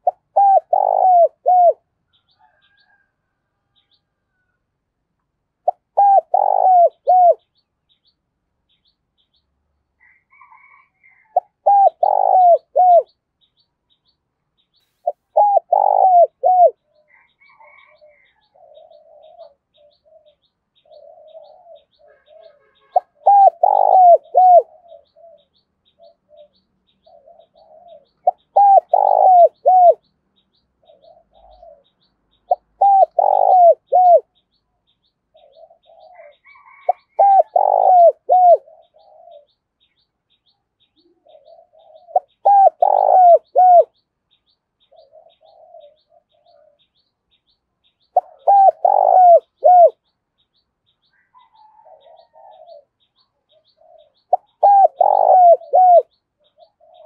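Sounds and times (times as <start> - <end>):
dove cooing: 0.0 - 3.1, 5.6 - 7.5, 10.0 - 13.2, 15.0 - 30.1, 30.8 - 34.4, 35.3 - 44.0, 44.8 - 47.0, 48.0 - 50.0, 51.1 - 57.0.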